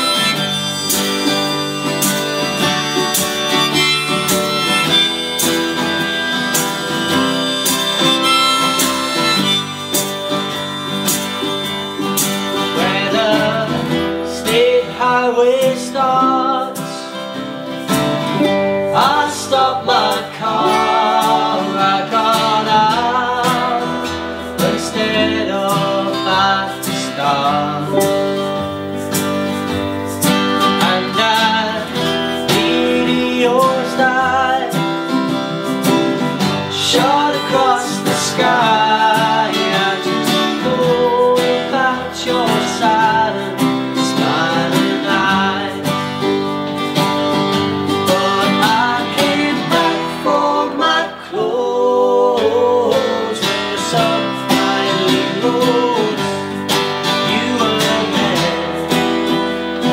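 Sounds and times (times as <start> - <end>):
acoustic guitar strummed: 0.0 - 59.9
man singing: 11.9 - 17.4, 18.4 - 29.1, 30.1 - 59.9.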